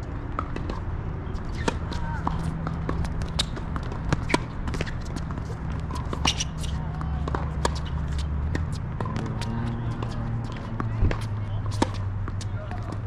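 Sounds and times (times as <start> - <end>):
tennis ball bouncing and struck: 0.3 - 0.8, 1.4 - 13.0.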